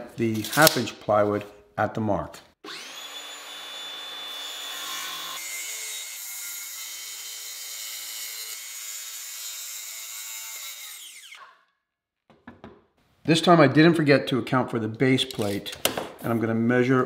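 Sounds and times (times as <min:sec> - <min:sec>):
circular saw cutting plywood: 0:02.6 - 0:11.6.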